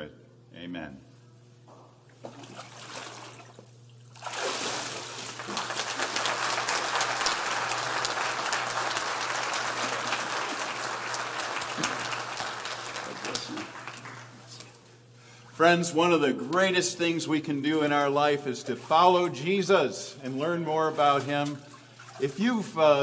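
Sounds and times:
water splashing and dripping: 0:02.3 - 0:06.2
crowd applauding: 0:05.4 - 0:14.6.

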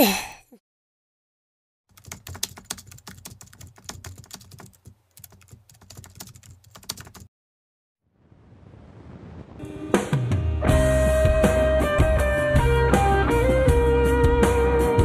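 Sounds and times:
keyboard typing: 0:01.9 - 0:07.3.

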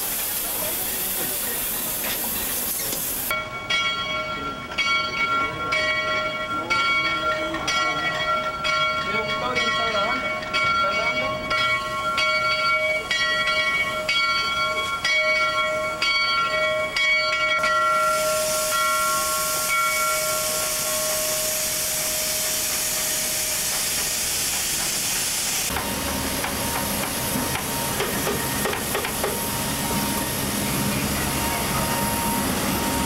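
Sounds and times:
steam hissing from locomotive: 0:00.0 - 0:03.3, 0:17.8 - 0:33.0
low rumble of train rolling: 0:00.0 - 0:33.0
bell ringing: 0:03.3 - 0:23.7.

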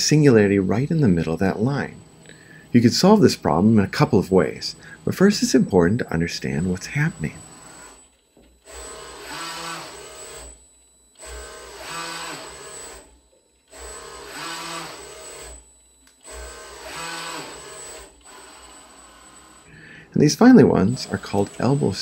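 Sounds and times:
robot arm servo motors whining: 0:06.6 - 0:19.7, 0:20.7 - 0:22.0.

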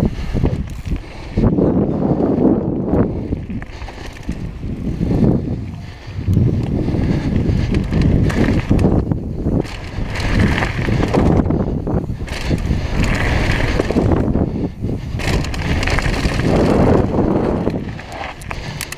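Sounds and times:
bike rattles and knocks: 0:00.0 - 0:18.9
wind buffeting microphone: 0:00.0 - 0:18.9
tyres crunching over gravel: 0:03.2 - 0:14.4, 0:15.0 - 0:18.9.

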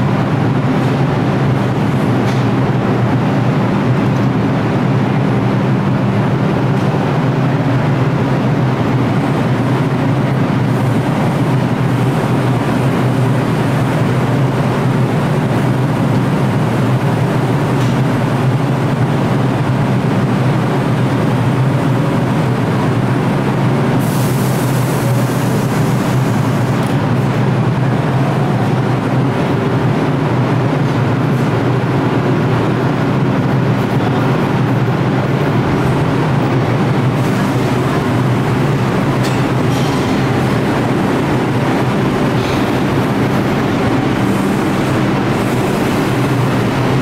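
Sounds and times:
subway train rumbling on track: 0:00.0 - 0:47.0
hiss: 0:24.0 - 0:26.8.

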